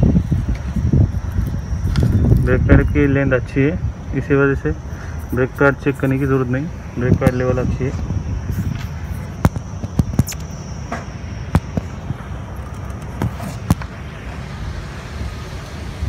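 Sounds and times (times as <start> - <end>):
steady low rumble: 0.0 - 16.0
sharp clicks and knocks: 9.4 - 13.9.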